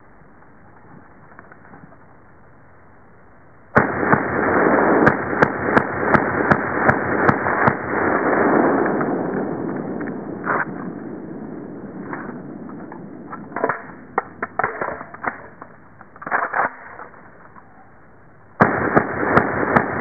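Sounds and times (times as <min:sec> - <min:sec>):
gunshot echo: 0:03.8 - 0:11.4, 0:18.6 - 0:20.0
rifle shots: 0:03.8 - 0:12.4, 0:18.6 - 0:20.0.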